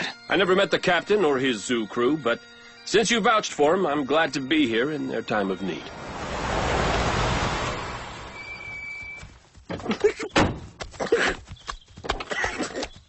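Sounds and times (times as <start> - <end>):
rushing whoosh: 5.8 - 9.0
high beep: 8.3 - 9.3
muffled suppressed laughter: 9.8 - 10.4.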